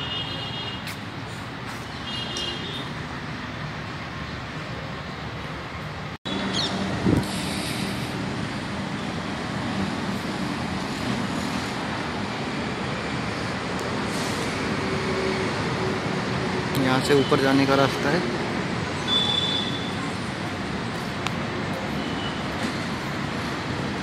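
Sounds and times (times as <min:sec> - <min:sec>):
distant road traffic roar: 0:00.0 - 0:24.0.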